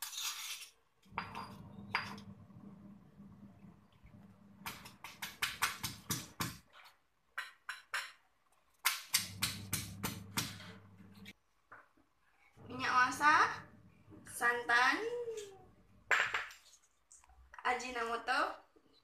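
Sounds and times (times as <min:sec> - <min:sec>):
pestle pounding in stone mortar: 0:04.6 - 0:06.7.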